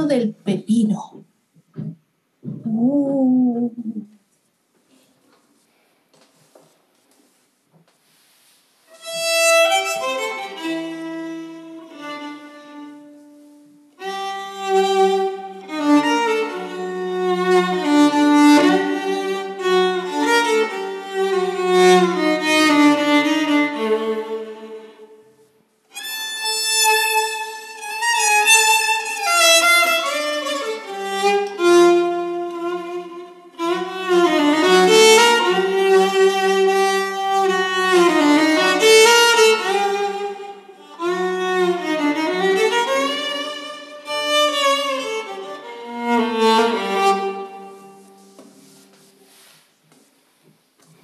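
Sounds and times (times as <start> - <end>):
solo violin melody: 8.9 - 48.4.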